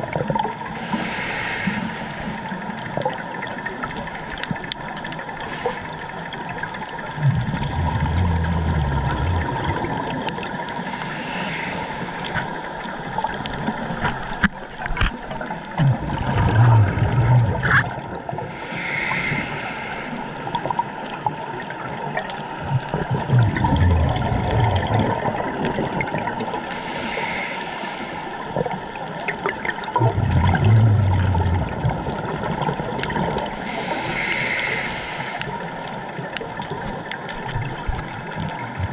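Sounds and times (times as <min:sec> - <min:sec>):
regulator bubbles gurgling: 0:00.0 - 0:00.9, 0:02.3 - 0:19.2, 0:19.8 - 0:27.4, 0:28.0 - 0:38.9
regulator inhalation hiss: 0:00.6 - 0:02.6, 0:05.4 - 0:06.1, 0:10.8 - 0:12.7, 0:18.5 - 0:20.4, 0:26.5 - 0:28.5, 0:33.5 - 0:35.8.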